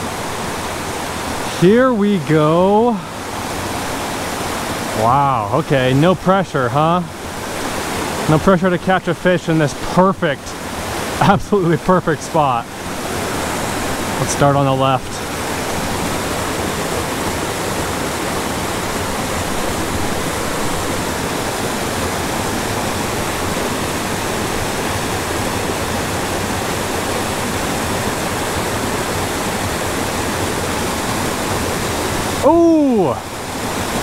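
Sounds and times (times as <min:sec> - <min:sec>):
waterfall rushing over rocks: 0:00.0 - 0:34.0.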